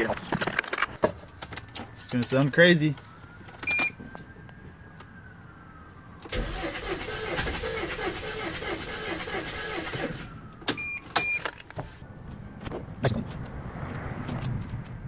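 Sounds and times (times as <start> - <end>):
diesel engine cranking: 6.2 - 11.7.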